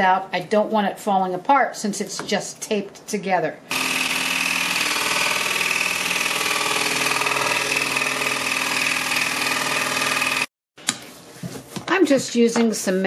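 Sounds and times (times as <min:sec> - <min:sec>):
scroll saw cutting wood: 0:03.7 - 0:10.5.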